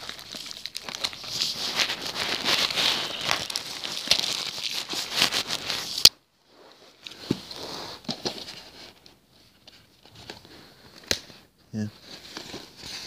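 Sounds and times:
plastic packaging crinkling: 0.0s - 6.1s.

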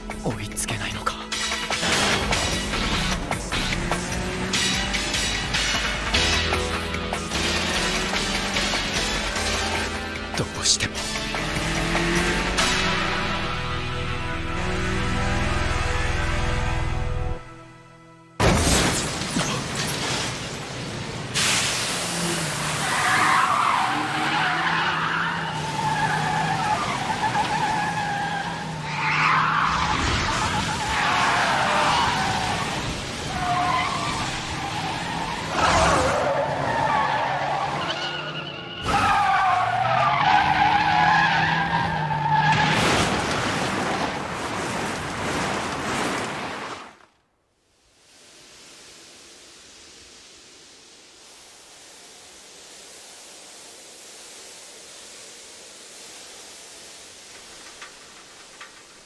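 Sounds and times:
car engine at high revs: 1.6s - 15.6s, 21.5s - 23.0s.

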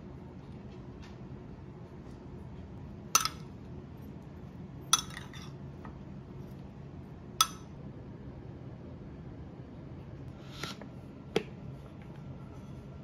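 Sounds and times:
low room hum: 0.0s - 13.0s
metal spoon clinking ceramic bowl: 3.2s - 3.5s, 4.9s - 5.6s, 7.4s - 7.8s.

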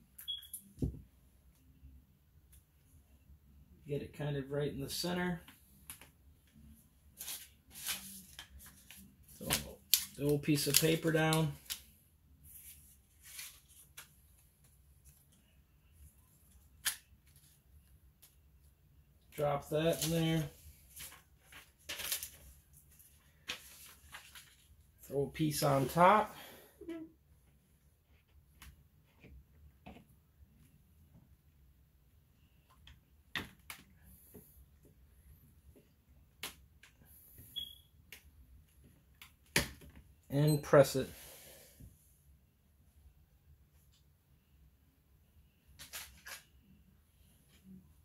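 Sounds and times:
paper rustling: 7.1s - 11.9s, 12.5s - 14.2s, 19.9s - 24.8s.

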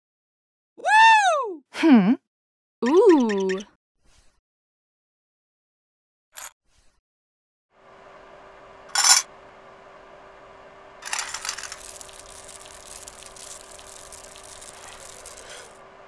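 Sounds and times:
low hum: 7.8s - 16.0s
coins clinking: 8.9s - 9.3s, 11.0s - 15.7s
coins clattering into a metal pan: 9.0s - 9.3s, 11.0s - 15.7s
metal balls rattling in a pan: 11.0s - 15.8s.

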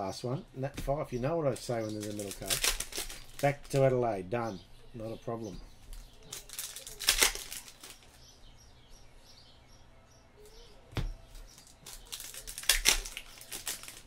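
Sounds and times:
cards being handled: 1.5s - 3.9s, 5.8s - 8.2s, 10.4s - 14.0s
foil wrappers crackling: 1.5s - 3.9s, 5.9s - 8.2s, 11.3s - 14.0s.

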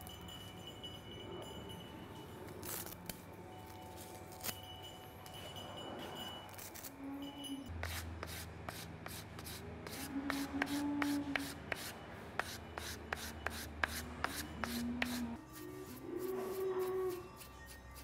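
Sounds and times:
sanding block scratching: 7.8s - 18.0s.

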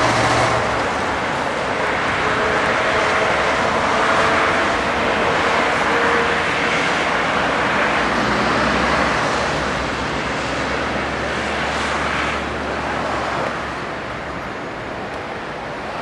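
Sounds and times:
road traffic noise: 0.0s - 16.0s
tram approaching on track: 0.0s - 16.0s.

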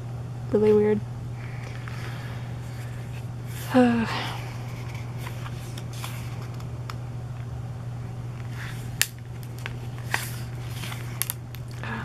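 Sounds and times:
steady low hum: 0.0s - 12.0s
book pages turning: 4.6s - 6.7s, 8.4s - 11.8s.

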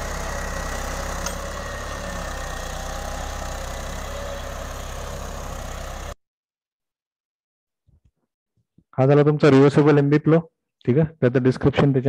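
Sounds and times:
tractor engine running: 0.0s - 6.2s.

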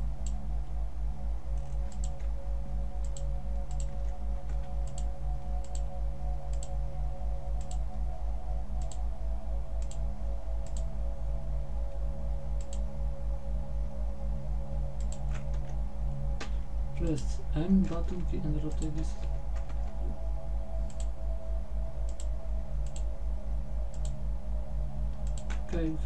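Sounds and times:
low pulsing hum: 0.0s - 26.0s
computer mouse clicking: 1.6s - 2.3s, 3.0s - 5.9s, 6.5s - 6.7s, 7.6s - 7.8s, 8.8s - 9.0s, 9.8s - 10.0s, 10.6s - 10.9s, 12.6s - 12.9s, 15.0s - 15.8s, 17.8s - 19.0s, 20.9s - 21.1s, 22.1s - 23.1s, 23.9s - 24.2s, 25.2s - 25.7s.

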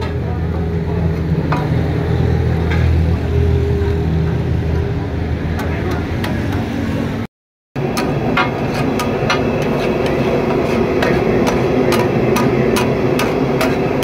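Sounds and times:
metal spatula tapping on griddle: 11.0s - 14.0s.

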